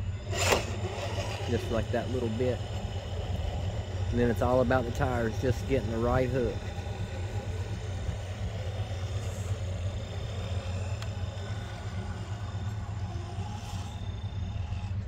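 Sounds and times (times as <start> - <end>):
electric motor and drivetrain whirring: 0.0 - 15.0
low rumble: 0.0 - 15.0.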